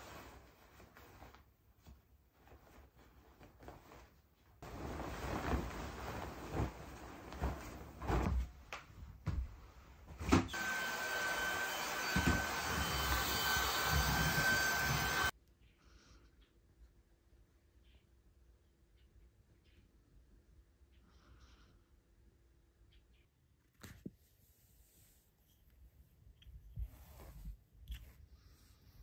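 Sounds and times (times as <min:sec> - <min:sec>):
vacuum cleaner running: 0:10.5 - 0:15.3.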